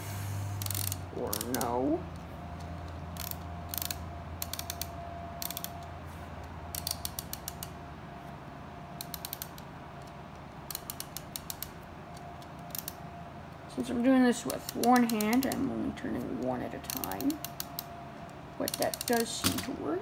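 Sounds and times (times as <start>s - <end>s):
plastic gears ratchet clicking: 0.6s - 1.7s, 3.2s - 5.8s, 6.7s - 7.7s, 9.0s - 11.8s, 12.5s - 13.0s, 14.4s - 15.7s, 16.8s - 17.9s, 18.6s - 19.6s.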